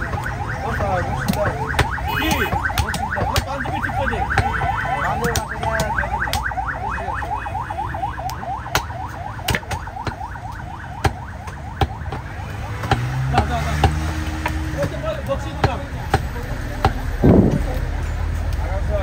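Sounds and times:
warbling alarm tone: 0.0 - 12.8
cleaver chopping on wooden block: 1.2 - 3.7, 4.3 - 6.6, 8.6 - 10.2, 11.0 - 17.5.

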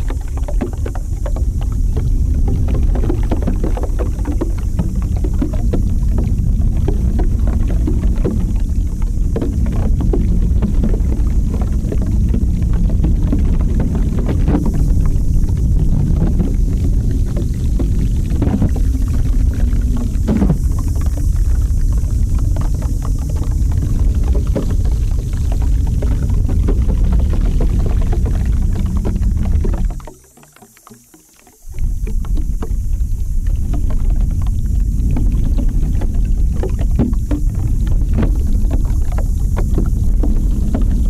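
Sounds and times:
low rumble with soft crackles: 0.0 - 41.0.

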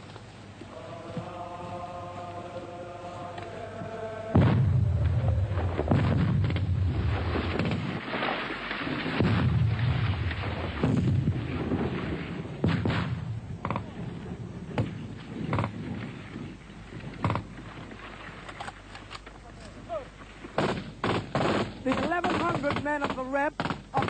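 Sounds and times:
explosions rumbling: 4.3 - 17.4
rifle shots: 5.6 - 14.0, 20.6 - 24.0.

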